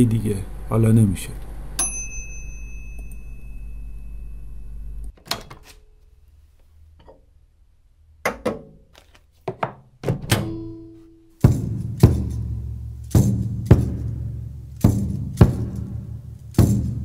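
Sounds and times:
steady low hum: 0:00.0 - 0:05.1
ringing tone: 0:01.8 - 0:05.1
percussion-led music: 0:11.4 - 0:17.0
percussive knocks and thumps: 0:11.4 - 0:17.0.

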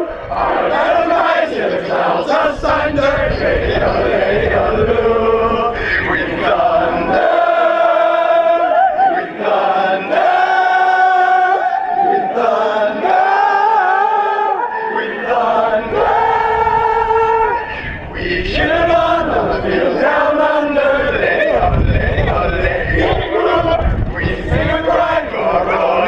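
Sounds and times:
crowd shouting: 0:00.0 - 0:04.8, 0:05.9 - 0:26.0
crowd yodeling in unison: 0:00.0 - 0:26.0.

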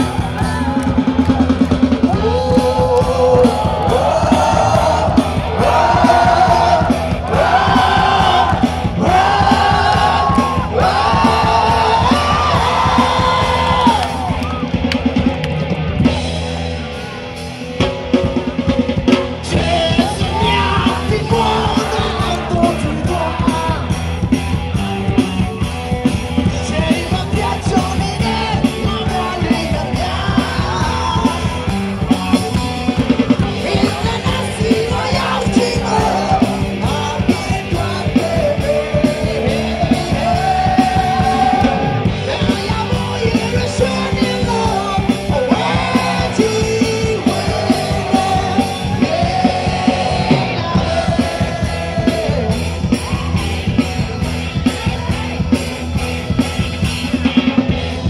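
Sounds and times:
live rock band playing: 0:00.0 - 0:58.0
person singing: 0:19.4 - 0:24.0, 0:33.2 - 0:53.8.

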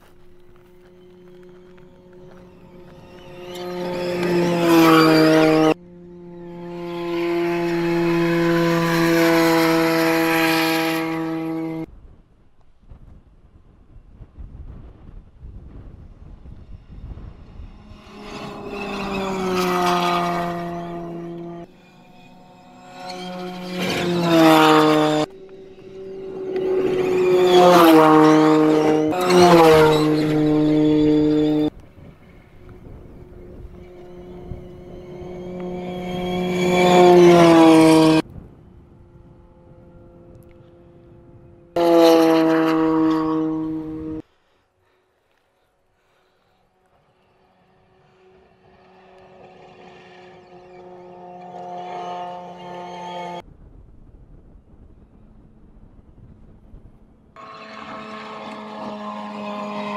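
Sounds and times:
tyres on loose gravel: 0:00.0 - 0:05.4
rally car engine drone: 0:00.0 - 0:11.9, 0:12.6 - 0:45.0, 0:45.9 - 0:59.9.

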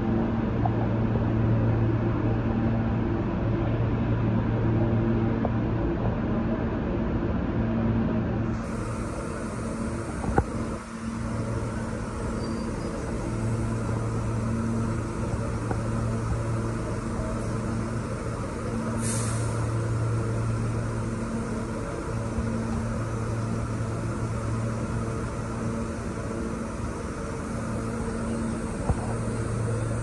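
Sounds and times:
subway train equipment humming: 0:00.0 - 0:30.0
air release hiss: 0:08.5 - 0:30.0.

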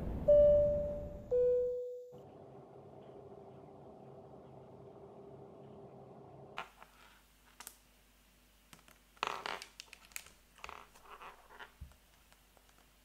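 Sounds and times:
low hum: 0:00.0 - 0:06.6.

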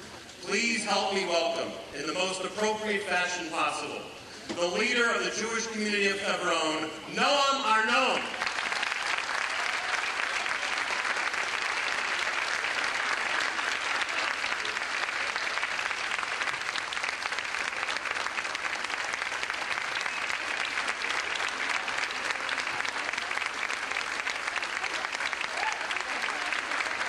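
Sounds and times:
large audience applauding: 0:08.1 - 0:27.0.

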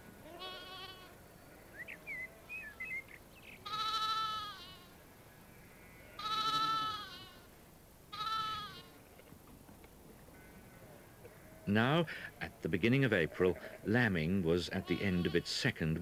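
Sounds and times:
lambs bleating: 0:00.2 - 0:01.2, 0:03.6 - 0:07.5, 0:08.1 - 0:09.0, 0:13.1 - 0:13.9, 0:14.7 - 0:15.5.

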